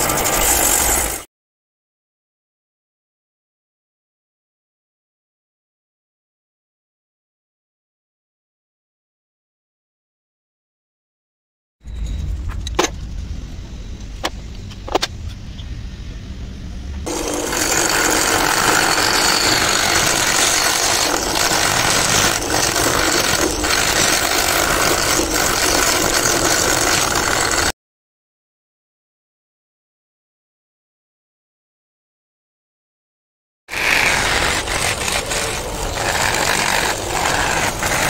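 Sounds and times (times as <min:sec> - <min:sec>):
loud steady machine noise: 0:00.0 - 0:01.3, 0:11.9 - 0:27.7, 0:33.7 - 0:38.0
low machine rumble: 0:11.8 - 0:27.6.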